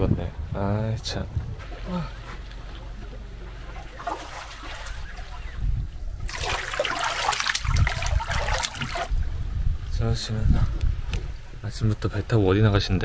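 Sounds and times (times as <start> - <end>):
feet splashing in water: 1.6 - 5.6, 6.2 - 9.1.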